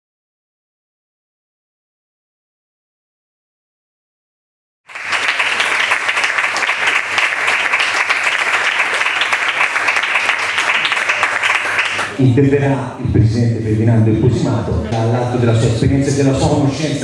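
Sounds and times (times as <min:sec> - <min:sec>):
audience applauding: 0:04.9 - 0:12.3.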